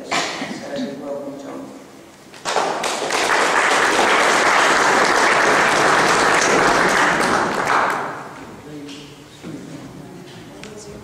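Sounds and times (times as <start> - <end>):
audience applauding: 2.4 - 8.3.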